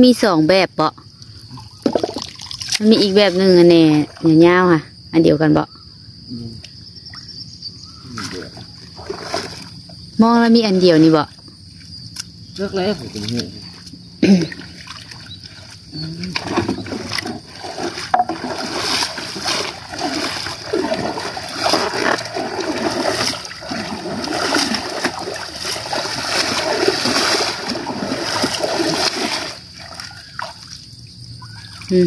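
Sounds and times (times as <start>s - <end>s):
water splashing and churning: 8.2s - 9.8s, 12.9s - 32.0s.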